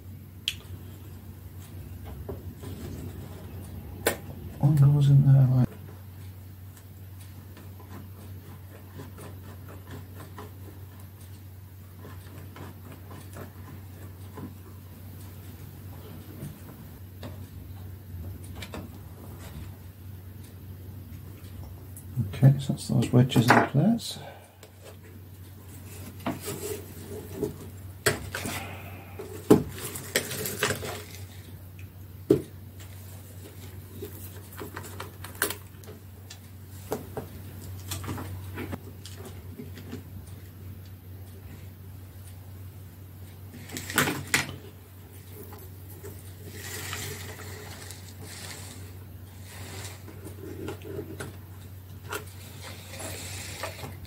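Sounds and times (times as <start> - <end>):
steady low hum: 0.0 - 54.0
light clicks and scratches: 5.7 - 17.6, 45.1 - 54.0.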